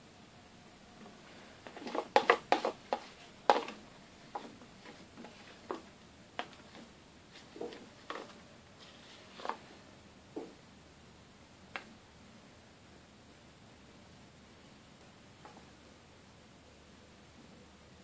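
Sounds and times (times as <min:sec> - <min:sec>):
spatula knocking against bowl: 0:02.0 - 0:03.8.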